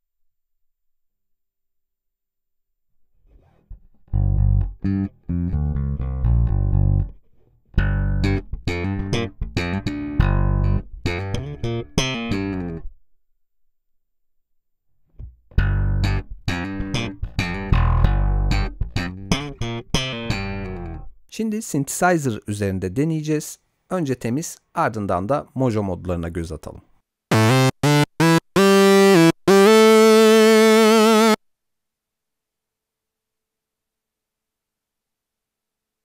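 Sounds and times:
electric bass guitar plucked: 3.3 - 13.0, 15.1 - 21.2, 27.3 - 31.4.

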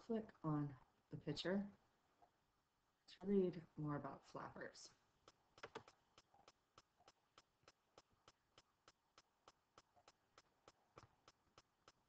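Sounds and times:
faint evenly spaced ticks: 5.0 - 12.0.

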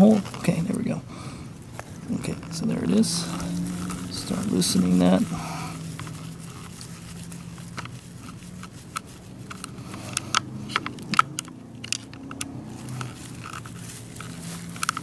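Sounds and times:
screw loosening metal clicks: 7.7 - 13.7.

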